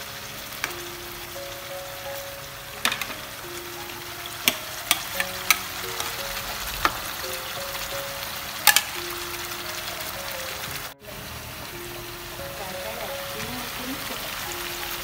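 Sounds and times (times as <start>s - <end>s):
meat sizzling in oil: 0.0s - 15.0s
utensils knocking on pan: 2.8s - 3.3s, 4.4s - 7.1s, 8.6s - 9.0s.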